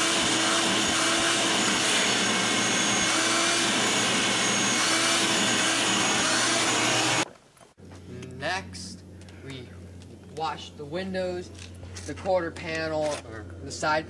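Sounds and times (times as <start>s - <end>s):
vacuum cleaner running: 0.0s - 7.2s.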